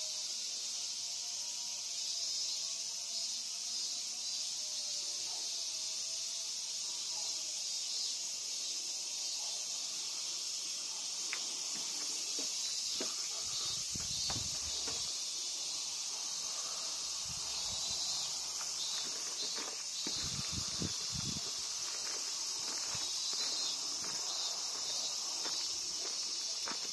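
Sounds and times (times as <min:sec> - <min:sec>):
insects droning: 0:00.0 - 0:26.9
footsteps thudding: 0:11.7 - 0:15.2, 0:18.6 - 0:26.9.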